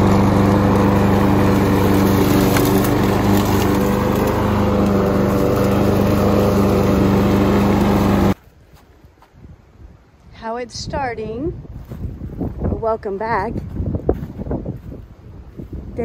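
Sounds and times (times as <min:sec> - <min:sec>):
lawn mower running: 0:00.0 - 0:08.4.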